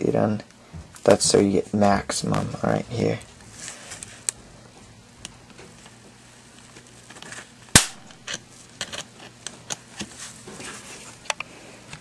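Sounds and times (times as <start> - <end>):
high-voltage spark snap: 7.7 - 8.4.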